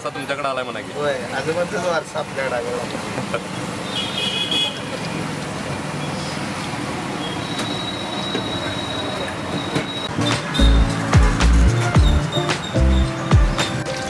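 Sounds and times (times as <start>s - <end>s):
street traffic: 0.0s - 14.0s.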